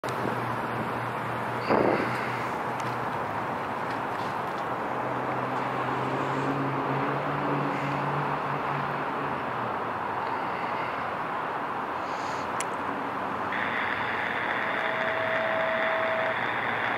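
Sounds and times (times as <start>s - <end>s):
diesel engine running: 0.0s - 16.9s
low steady drone: 13.5s - 16.9s.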